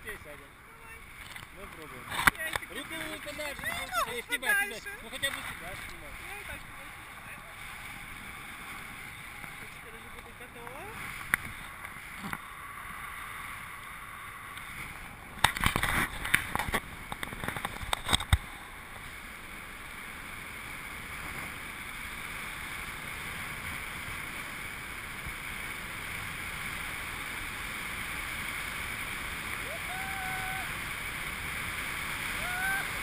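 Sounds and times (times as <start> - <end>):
wind hiss on microphone: 20.8 - 33.0.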